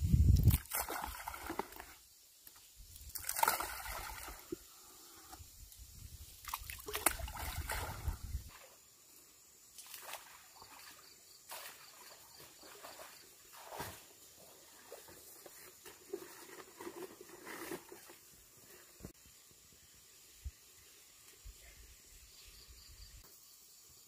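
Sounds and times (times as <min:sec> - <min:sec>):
stream trickling over stones: 0:00.2 - 0:04.7, 0:05.8 - 0:08.6.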